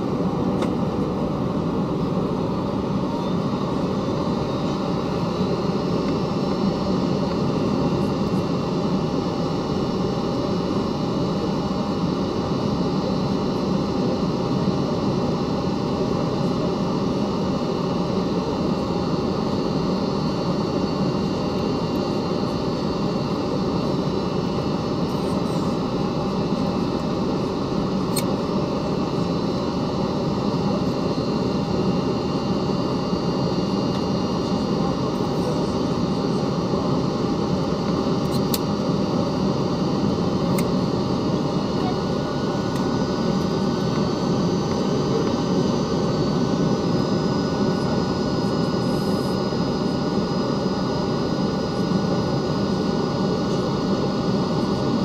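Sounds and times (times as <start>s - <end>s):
airliner cabin rush and engine hum: 0.0s - 55.0s.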